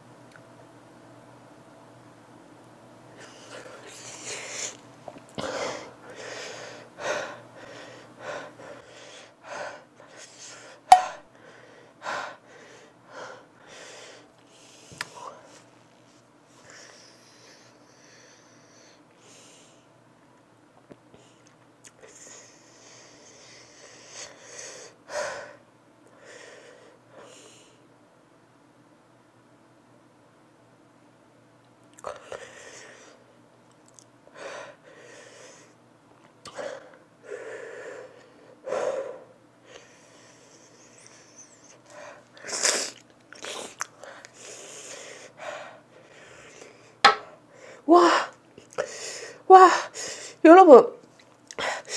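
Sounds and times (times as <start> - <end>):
woman sniffing and breathing hard: 3.2 - 4.8, 36.6 - 50.4.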